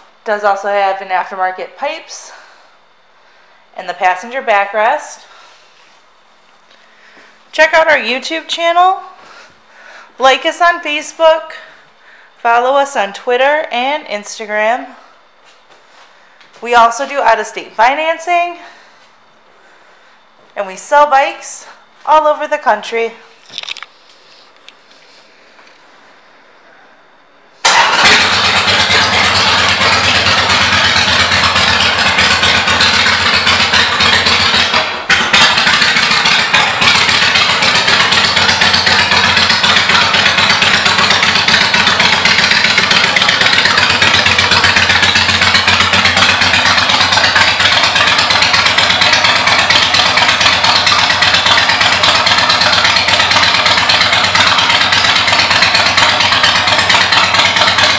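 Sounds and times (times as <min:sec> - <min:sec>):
motorcycle engine idling: 0:27.7 - 0:57.9.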